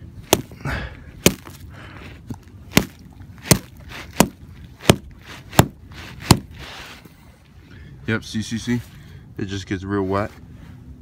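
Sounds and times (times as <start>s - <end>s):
tool chipping ice: 1.2s - 1.6s, 2.7s - 6.8s.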